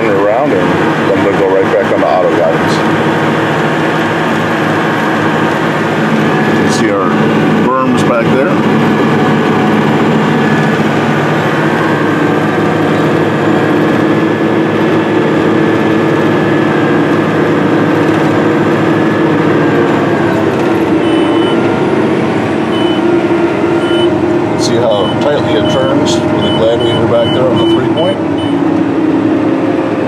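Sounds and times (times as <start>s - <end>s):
diesel engine running under load: 0.0s - 30.0s
faint short beeps: 21.0s - 21.6s, 22.8s - 23.0s, 25.0s - 28.6s.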